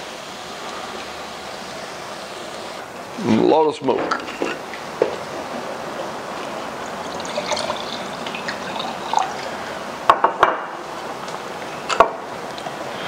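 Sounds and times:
steady hiss: 0.0s - 13.0s
wine pouring into glass: 6.4s - 9.9s.

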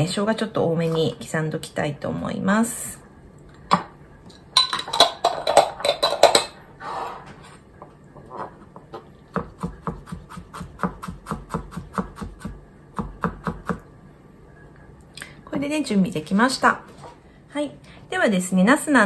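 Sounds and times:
knocks and scrapes of handling: 6.7s - 9.1s
knife chopping on plastic board: 9.3s - 13.8s.

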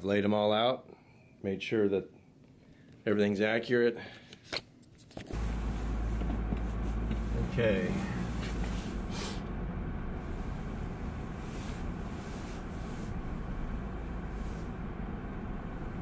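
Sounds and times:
engine and road noise rumble: 5.3s - 16.0s
faint rustles: 5.3s - 16.0s.

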